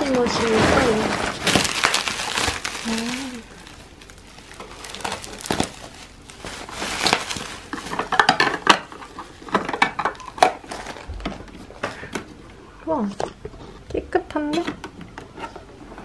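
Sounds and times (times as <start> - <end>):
bubble wrap rustling and crinkling: 0.0 - 11.9.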